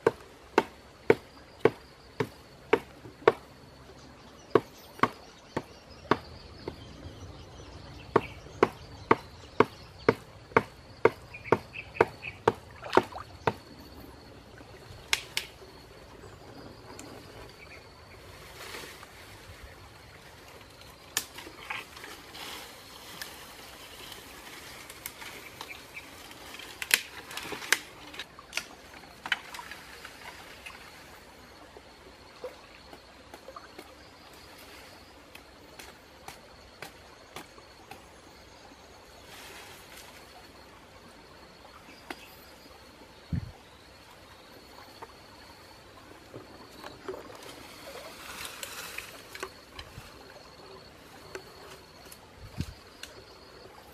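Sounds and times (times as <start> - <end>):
leaves rustling: 11.2 - 31.5, 39.2 - 40.6, 45.5 - 53.9
branches snapping and cracking: 15.1 - 15.5, 21.1 - 22.2, 24.0 - 30.2.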